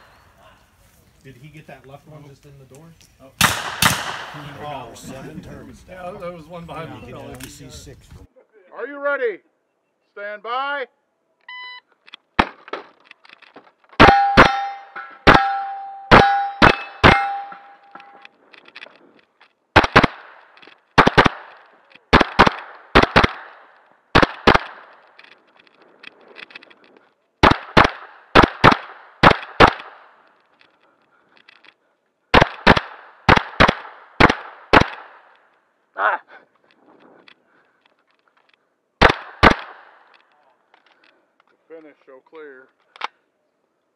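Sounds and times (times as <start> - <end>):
carbine gunshots: 3.4 - 4.8, 14.0 - 26.8, 27.4 - 30.5, 32.3 - 35.6, 39.0 - 40.2
steel target ringing: 14.0 - 18.2.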